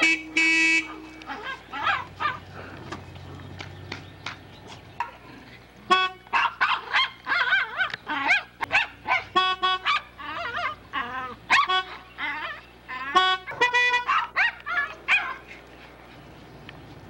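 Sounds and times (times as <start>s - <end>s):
dog barking and yipping: 0.7s - 2.5s, 6.3s - 15.6s
dog whining: 9.9s - 15.4s.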